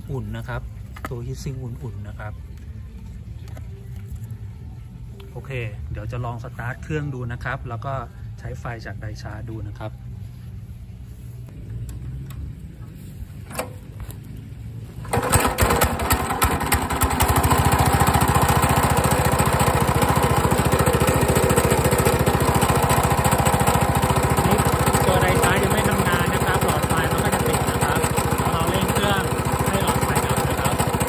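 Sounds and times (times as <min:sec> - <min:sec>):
small petrol engine idling: 0:12.8 - 0:31.0.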